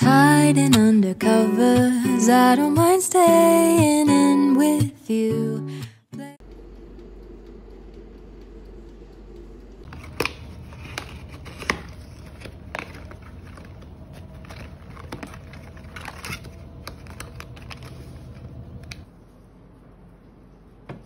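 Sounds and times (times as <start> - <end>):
low steady hum: 5.1 - 21.0
plastic sachets rustling: 9.9 - 18.8.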